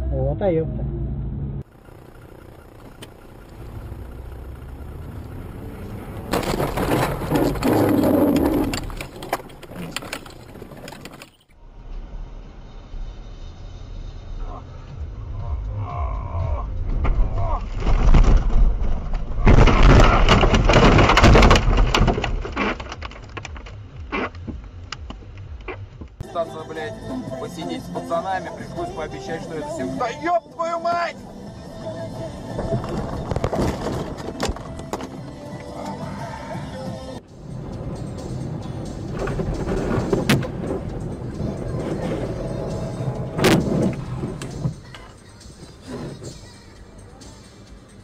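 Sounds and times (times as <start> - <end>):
car engine and road noise: 0.0 - 48.0
car crashing through brush: 2.3 - 11.2, 16.9 - 23.4, 32.6 - 34.6, 39.0 - 44.9
car collision impact: 6.2 - 11.2, 39.0 - 41.1, 41.8 - 46.5
clattering and rattling: 6.3 - 11.6, 16.9 - 23.9, 32.6 - 35.1.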